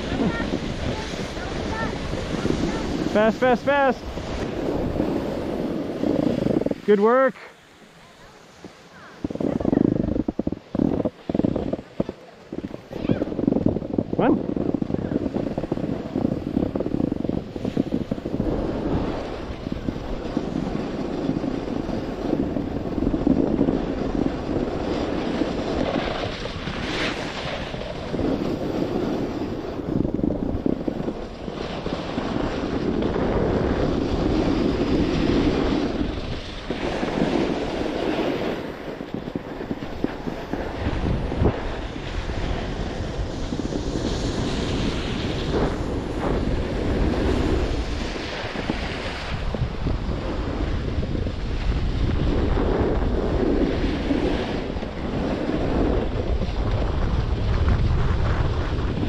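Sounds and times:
skis scraping over snow: 0.0 - 59.0
wind buffeting microphone: 0.0 - 59.0.

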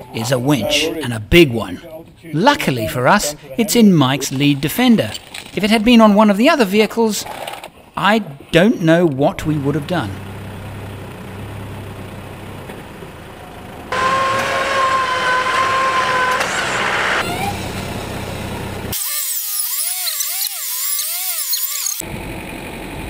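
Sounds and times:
engine idling: 9.4 - 19.0
electric winch whining: 10.2 - 19.0.

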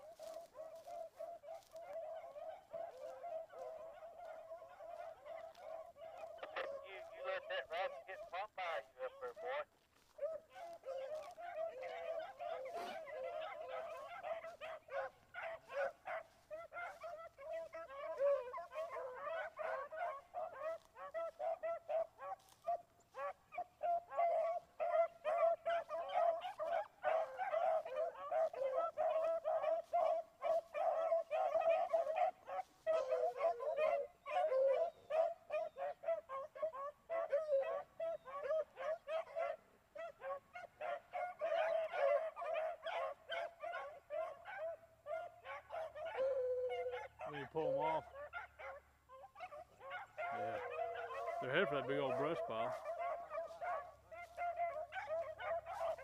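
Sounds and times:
pack of dogs baying: 0.0 - 56.0.

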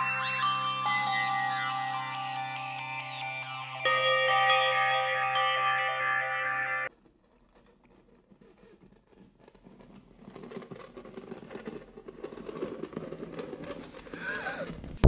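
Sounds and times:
claws scratching a surface: 7.3 - 14.7.

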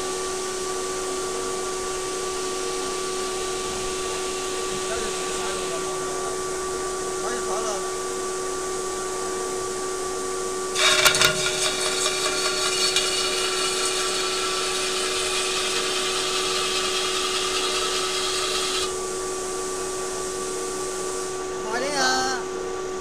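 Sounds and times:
lathe humming: 10.6 - 21.6
metal scraping hiss with ringing: 10.7 - 21.5.

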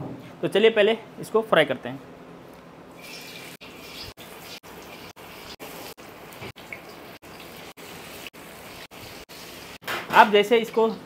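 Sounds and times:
paneer sizzling in hot oil: 3.0 - 9.8.

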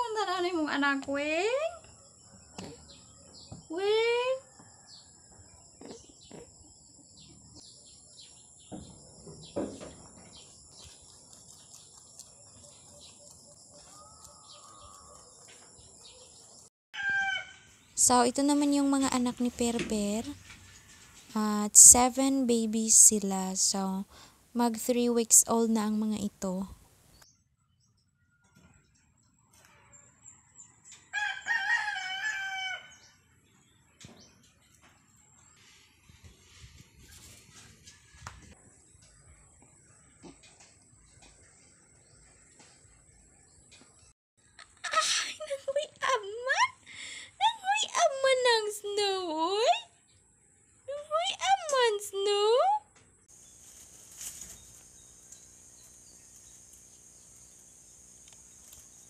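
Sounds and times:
rooster crowing: 13.7 - 15.6, 17.0 - 17.8, 29.8 - 33.1
high insect trill: 53.3 - 59.0.

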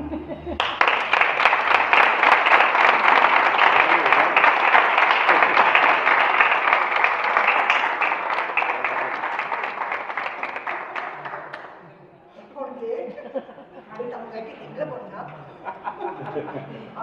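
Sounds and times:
audience applauding: 0.6 - 11.8.

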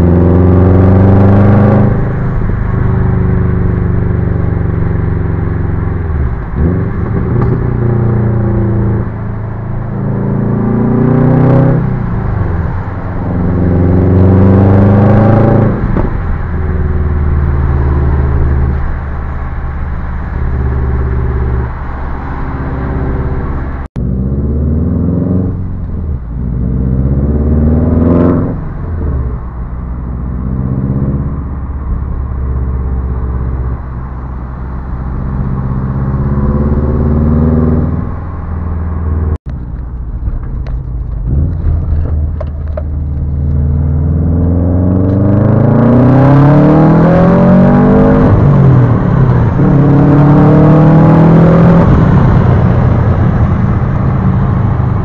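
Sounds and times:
car engine accelerating through gears: 0.0 - 55.0.

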